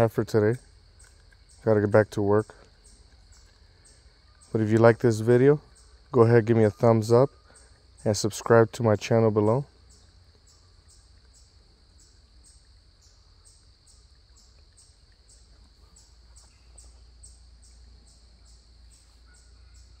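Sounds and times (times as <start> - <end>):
faint insect chirping: 0.0 - 20.0.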